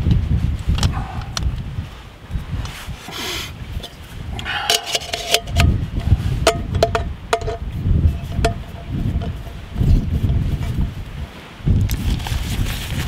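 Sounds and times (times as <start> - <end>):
wind rumble on microphone: 0.0 - 13.0
metal pot parts clinking: 4.6 - 5.7, 6.5 - 7.6.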